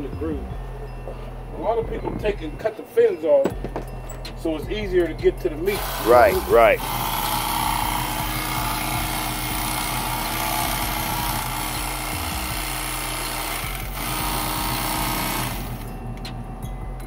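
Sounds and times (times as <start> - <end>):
electric carving knife running: 5.7 - 15.9.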